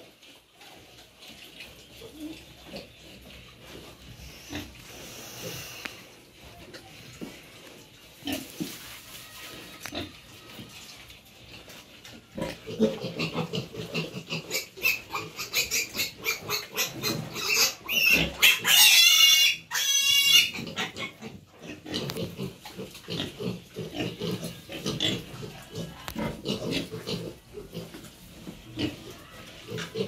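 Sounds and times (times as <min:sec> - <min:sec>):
high-pitched pig squeal: 0:08.2 - 0:11.2, 0:12.1 - 0:30.0
pigs grunting: 0:12.3 - 0:30.0.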